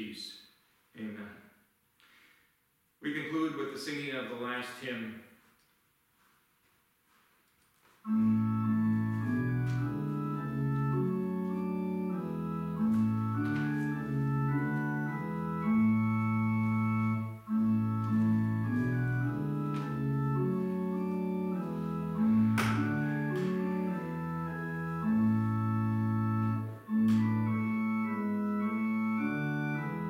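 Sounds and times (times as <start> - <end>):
organ playing a hymn: 8.0 - 30.0.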